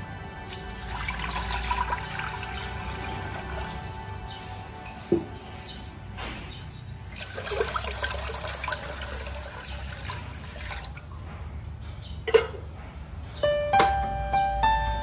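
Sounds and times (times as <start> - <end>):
piano music: 0.0 - 6.4, 13.4 - 15.0
water pouring into metal pot: 0.4 - 4.0, 7.1 - 11.2.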